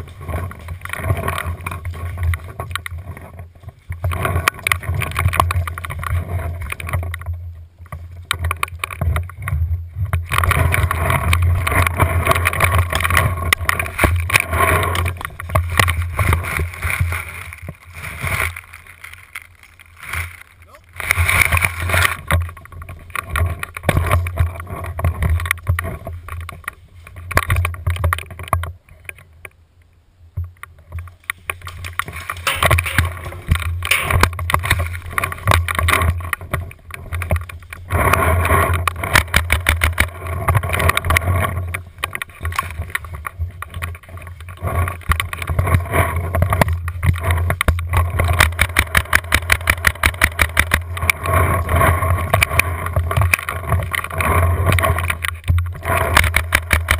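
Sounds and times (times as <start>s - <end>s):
handling rumble: 0.0s - 29.4s.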